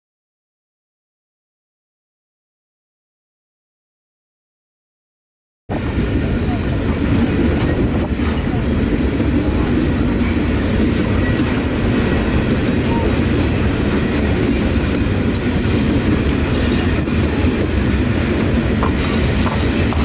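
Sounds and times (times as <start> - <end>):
freight train rumbling past: 5.7 - 20.0.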